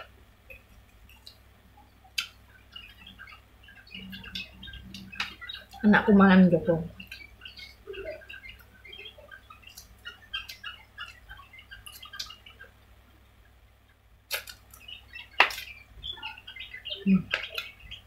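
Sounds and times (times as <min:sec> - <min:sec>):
small birds chirping: 0:00.0 - 0:18.0
person chewing food: 0:14.3 - 0:14.8.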